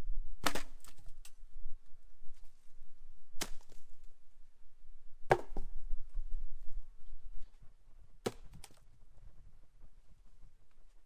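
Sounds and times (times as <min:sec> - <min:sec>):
logs landing with wooden knocks: 0:00.4 - 0:01.4, 0:03.4 - 0:03.9, 0:05.3 - 0:05.8, 0:08.2 - 0:08.8.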